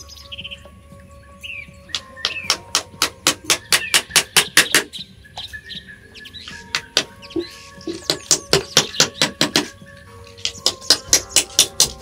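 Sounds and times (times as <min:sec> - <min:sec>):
birds chirping: 0:00.0 - 0:12.0
rapid sharp knocks: 0:02.4 - 0:04.9, 0:07.9 - 0:09.7, 0:10.6 - 0:12.0.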